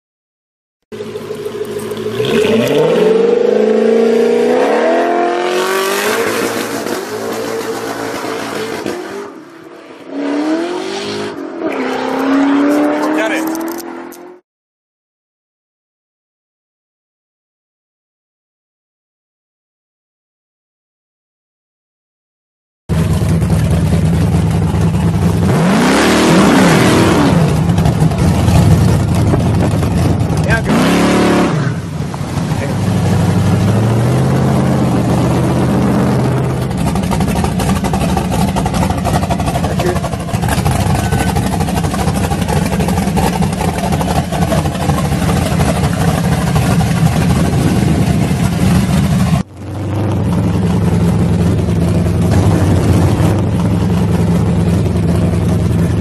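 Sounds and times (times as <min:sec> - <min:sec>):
sports car engine revving: 0:01.0 - 0:09.4, 0:10.0 - 0:14.4, 0:22.9 - 0:56.0
tyres spinning: 0:36.5 - 0:49.4.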